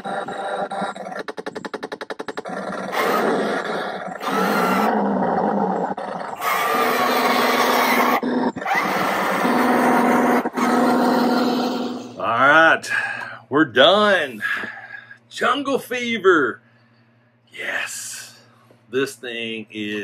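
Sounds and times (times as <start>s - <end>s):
toy tank engine rumble: 0.0s - 13.2s
steady hum: 0.0s - 20.0s.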